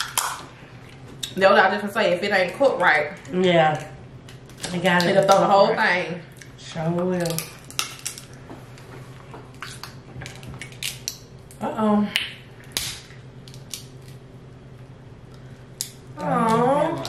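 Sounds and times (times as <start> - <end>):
crab shells cracking: 0.0 - 0.4, 6.4 - 8.4, 9.5 - 14.3, 15.4 - 16.3.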